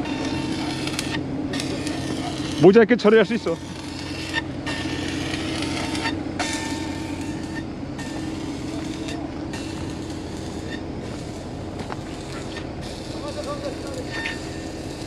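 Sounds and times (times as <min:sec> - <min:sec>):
excavator diesel engine drone: 0:00.0 - 0:15.0
high hiss: 0:06.9 - 0:15.0.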